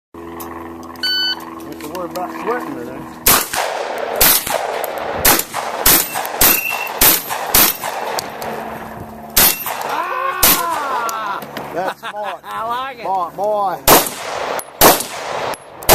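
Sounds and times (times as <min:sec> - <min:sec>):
shotgun shots: 0:03.2 - 0:08.7, 0:09.4 - 0:10.7, 0:13.9 - 0:15.9.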